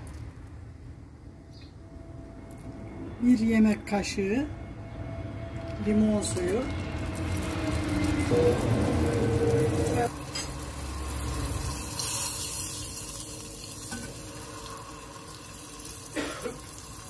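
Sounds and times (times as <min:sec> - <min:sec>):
sauce sizzling: 0:06.9 - 0:17.0.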